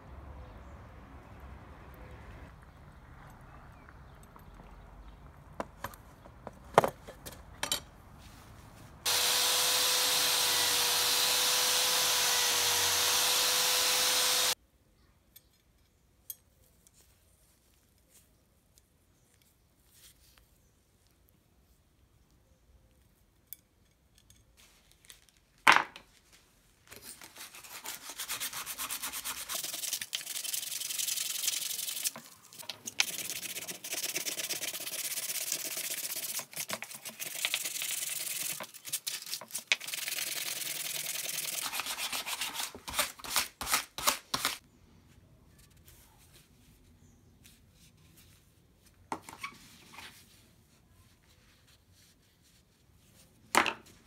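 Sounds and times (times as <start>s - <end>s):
sandpaper rubbing on wood: 27.4s - 32.2s, 33.1s - 38.6s, 39.8s - 43.0s.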